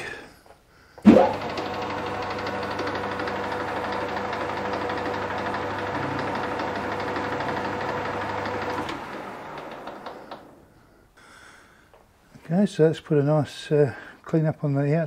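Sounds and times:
metal lathe humming: 1.0 - 10.7.

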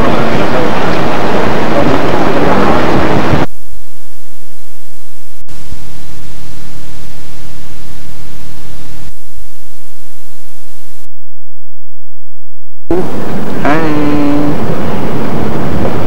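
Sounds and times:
faint high whine: 0.0 - 11.1
videotape static hiss: 0.0 - 11.1, 12.9 - 16.0
low hum: 0.0 - 16.0.

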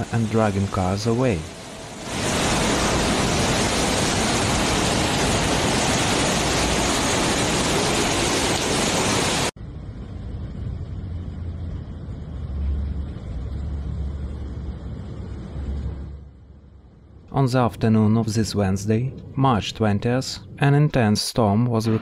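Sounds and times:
flood torrent roaring: 0.0 - 9.6
low rumble of floodwater: 0.0 - 21.8.

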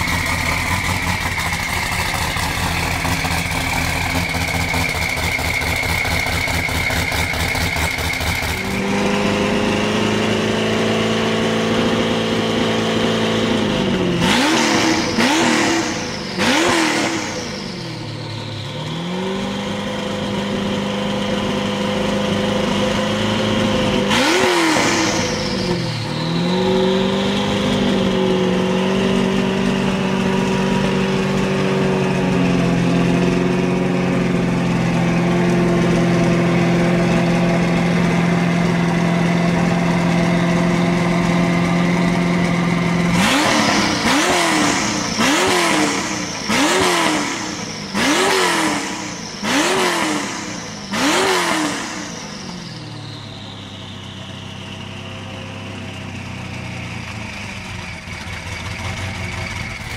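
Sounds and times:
car engine idling and revving: 0.0 - 59.9
turbo whistle: 43.2 - 54.7.

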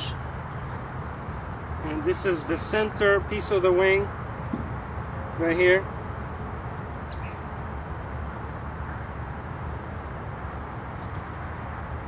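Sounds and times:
faint bird chirps: 7.0 - 7.5.

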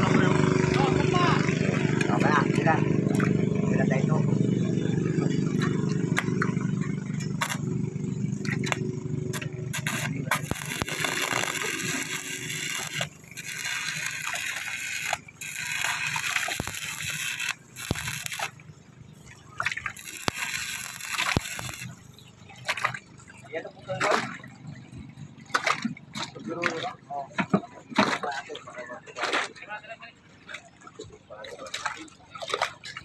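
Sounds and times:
welding arc crackling: 5.4 - 22.2.

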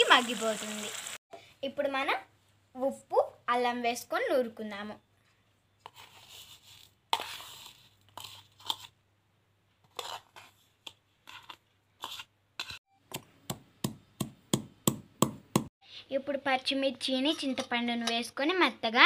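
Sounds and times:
ingredients scraping in stone mortar: 5.8 - 9.0, 9.8 - 12.8
stone pestle pounding in mortar: 13.5 - 15.7.

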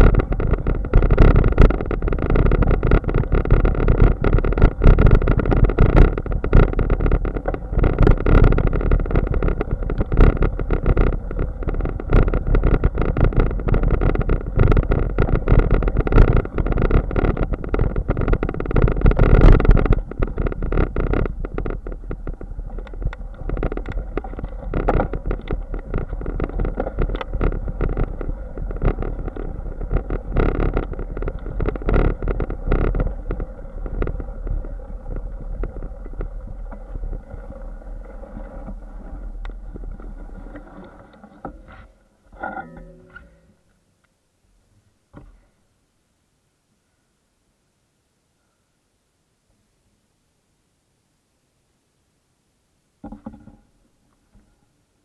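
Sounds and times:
bicycle rattles and knocks: 0.0 - 38.8
wind rumble on microphone: 0.0 - 41.2.

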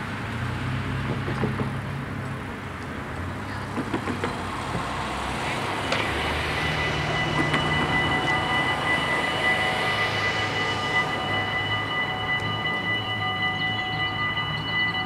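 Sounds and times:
passing road traffic: 0.0 - 15.0
level crossing warning bells: 3.6 - 15.0.

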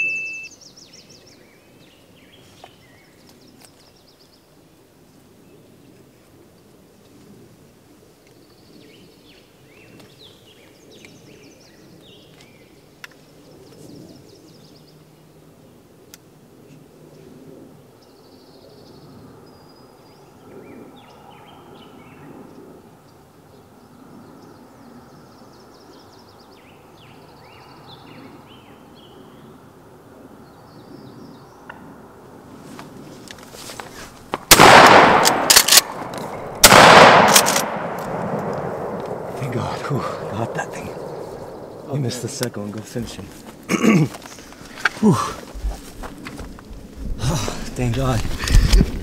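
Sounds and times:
songbirds singing trills: 0.0 - 4.6, 8.2 - 15.8, 17.8 - 31.8, 39.4 - 43.3
low ambient background: 0.0 - 48.0.

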